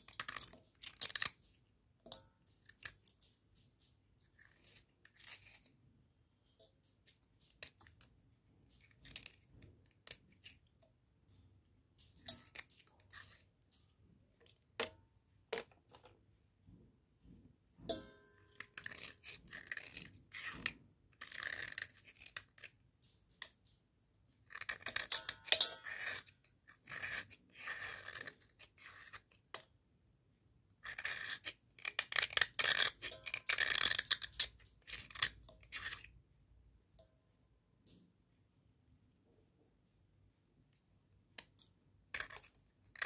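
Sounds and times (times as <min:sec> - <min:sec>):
blade scraping slate pencil: 0:04.2 - 0:05.8, 0:12.2 - 0:13.5, 0:18.4 - 0:22.8, 0:24.4 - 0:29.6, 0:30.8 - 0:36.2, 0:42.1 - 0:43.0.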